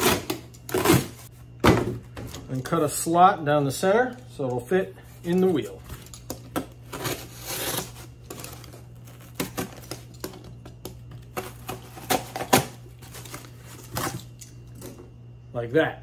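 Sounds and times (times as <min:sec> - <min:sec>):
knife cutting cardboard: 0:06.9 - 0:10.0.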